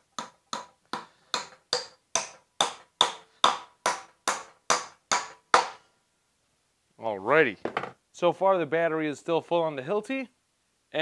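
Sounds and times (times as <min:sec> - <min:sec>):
hammer striking nails into wood: 0:00.0 - 0:05.8.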